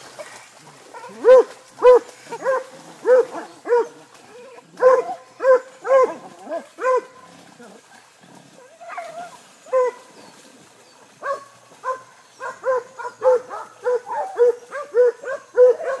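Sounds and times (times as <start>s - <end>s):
dog barking: 1.0s - 4.0s, 4.8s - 7.2s, 9.7s - 10.0s, 11.2s - 16.0s.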